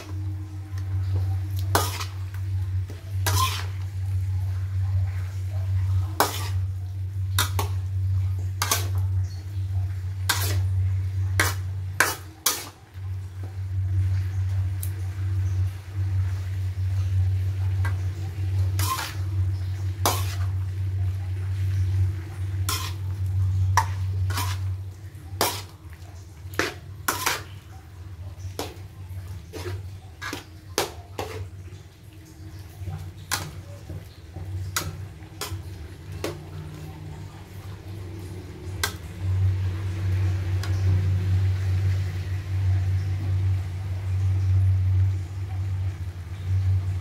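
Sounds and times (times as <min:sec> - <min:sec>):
metal spatula scraping a wok: 0:00.0 - 0:13.4, 0:17.3 - 0:31.5, 0:32.3 - 0:39.1.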